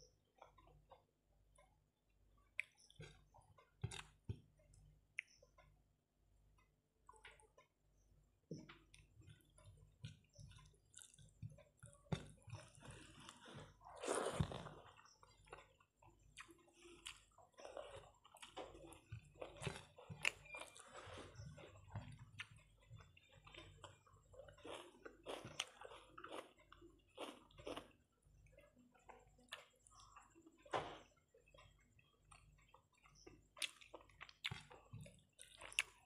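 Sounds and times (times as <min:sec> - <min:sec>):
chewing and wet mouth sounds: 0:00.2 - 0:05.6, 0:08.7 - 0:30.7, 0:31.3 - 0:36.0.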